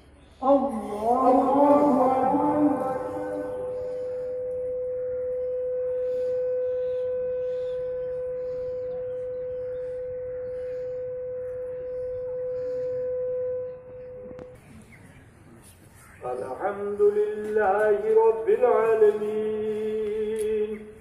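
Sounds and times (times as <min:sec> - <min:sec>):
steady tone: 0:00.4 - 0:14.5.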